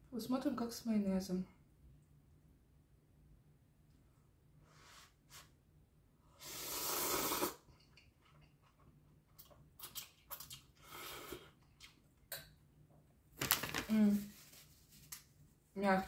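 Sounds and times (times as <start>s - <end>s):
person slurping noodles: 6.4s - 7.7s
wet chewing and mouth clicks: 7.8s - 12.5s.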